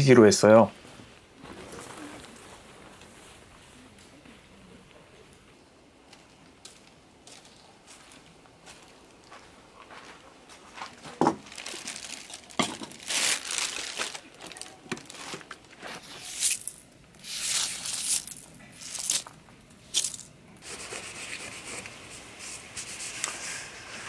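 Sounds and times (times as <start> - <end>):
camping gear crinkling and rustling: 0.8 - 4.7, 6.1 - 20.4.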